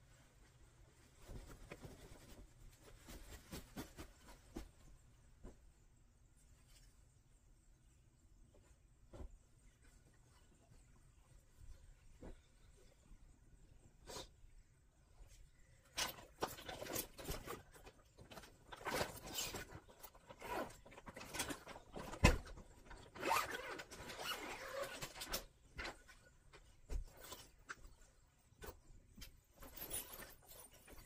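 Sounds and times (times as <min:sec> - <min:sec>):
zipper being pulled open: 0:23.2 - 0:25.3.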